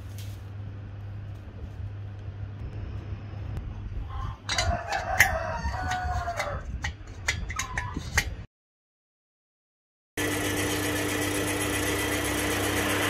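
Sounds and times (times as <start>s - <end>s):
steady low hum: 0.0s - 5.0s
rooster crowing: 4.1s - 6.7s.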